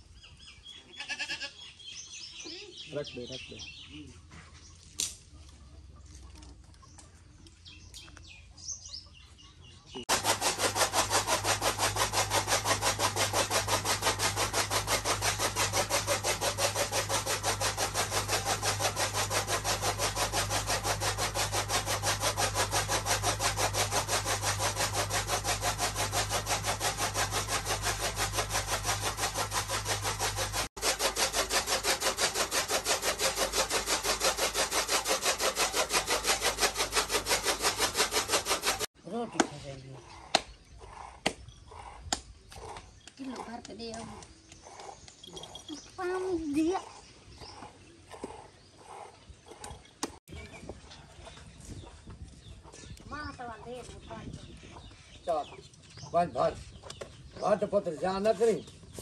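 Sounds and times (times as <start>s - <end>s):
rhythmic scraping strokes: 10.0s - 42.0s.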